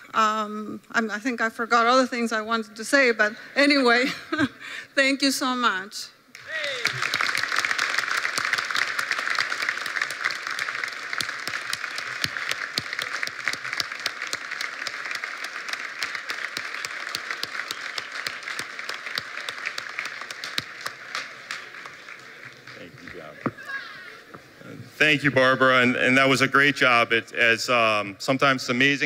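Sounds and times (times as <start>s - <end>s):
audience applauding: 6.3s - 24.4s.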